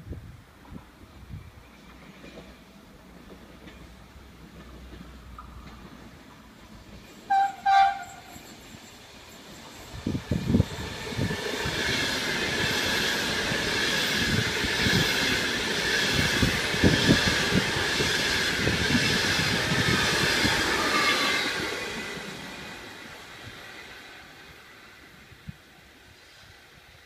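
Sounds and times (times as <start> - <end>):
electric train passing: 0.1 - 27.0
train wheels squealing: 6.8 - 25.2.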